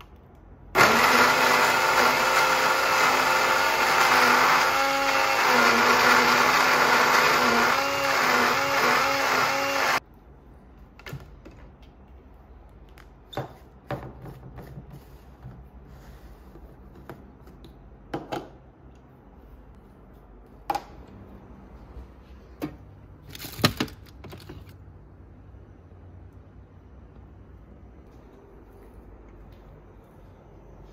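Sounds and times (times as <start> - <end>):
blender motor running: 0.8 - 10.0.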